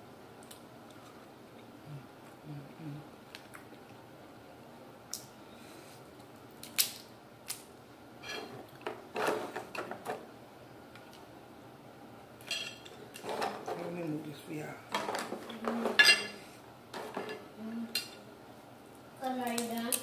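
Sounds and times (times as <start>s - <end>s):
crab shell cracking: 6.6s - 7.7s.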